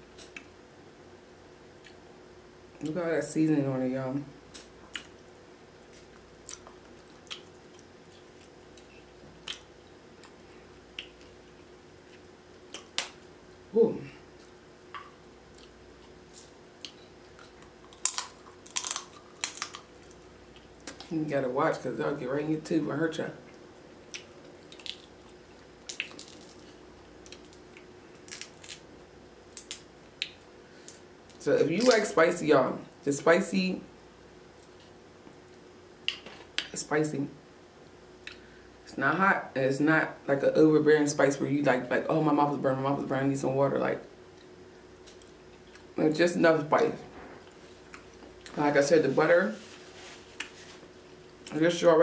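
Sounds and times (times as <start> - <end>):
chewing: 4.5 - 10.4
crab meat being chewed: 4.5 - 13.1, 14.4 - 21.1, 23.4 - 28.9
crab shell cracking: 17.4 - 20.2, 24.2 - 25.2, 25.8 - 28.9, 29.5 - 31.0.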